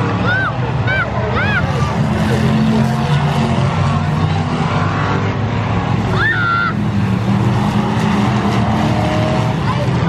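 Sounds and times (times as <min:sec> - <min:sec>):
race car engines droning: 0:00.0 - 0:10.0.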